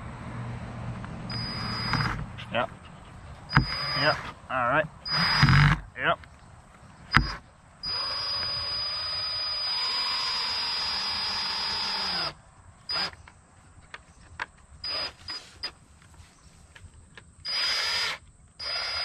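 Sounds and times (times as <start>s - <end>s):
cordless drill driving screw: 1.3s - 2.2s, 3.5s - 4.3s, 5.1s - 5.8s, 7.1s - 13.2s, 14.8s - 15.7s, 17.5s - 19.0s.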